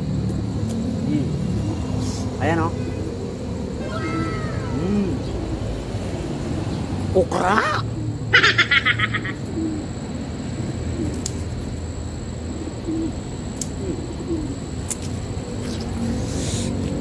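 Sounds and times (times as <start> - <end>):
faint low cooing: 3.8 - 5.6, 13.8 - 14.6.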